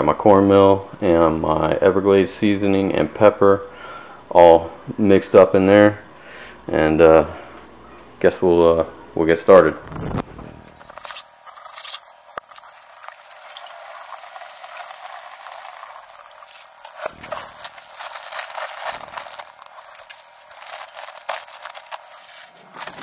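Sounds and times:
faucet running water: 12.5s - 17.9s
wet leaves splashing and rustling: 12.5s - 23.0s.

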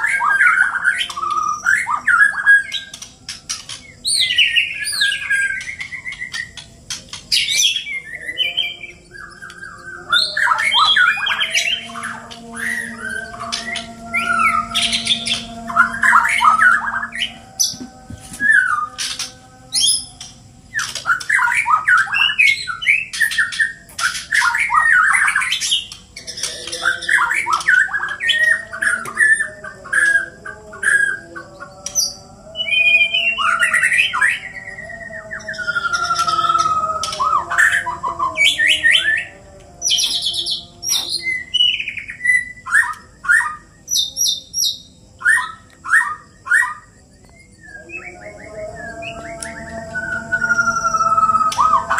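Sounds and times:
low warbling song: 0.0s - 42.2s, 46.9s - 51.9s
birds singing whistled phrases: 0.0s - 51.9s.

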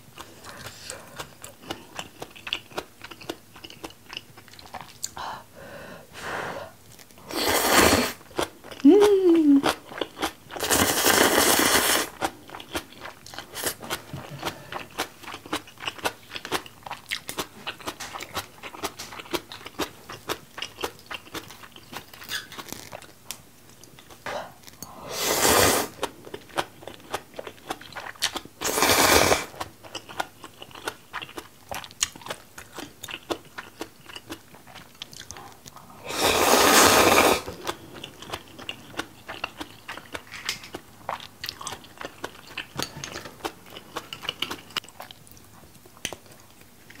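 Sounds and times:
wet chewing: 0.2s - 5.2s, 8.2s - 24.9s, 26.0s - 28.7s, 29.4s - 35.9s, 36.7s - 47.0s
loud noodle slurps: 7.3s - 8.2s, 10.6s - 12.2s, 25.1s - 26.0s, 28.6s - 29.5s, 36.0s - 37.5s.

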